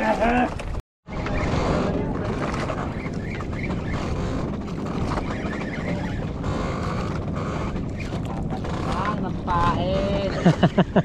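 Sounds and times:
wind buffeting microphone: 0:00.4 - 0:11.0.

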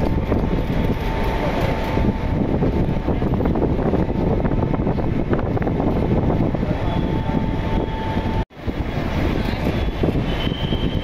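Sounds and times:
traffic rumbling: 0:00.0 - 0:11.0
wind rumbling on microphone: 0:00.0 - 0:11.0.

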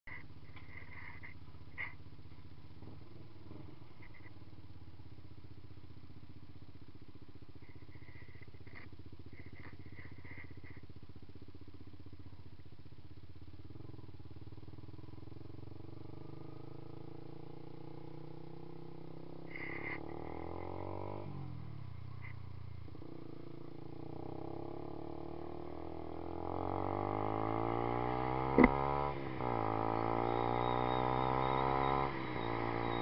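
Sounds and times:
motorcycle engine running: 0:00.1 - 0:33.0
high chirps: 0:29.9 - 0:33.0.

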